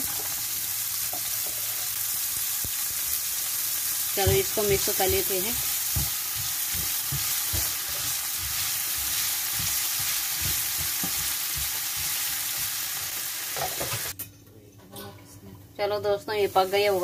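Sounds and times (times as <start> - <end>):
vegetables sizzling in oil: 0.0 - 14.2, 16.2 - 17.0
spatula scraping and tapping pan: 4.2 - 12.7.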